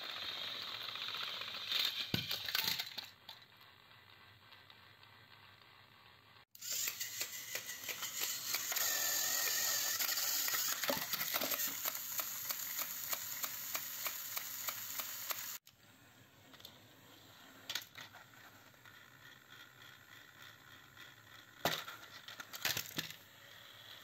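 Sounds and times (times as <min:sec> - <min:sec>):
toy train motors whirring: 0:00.0 - 0:15.8, 0:16.4 - 0:24.0.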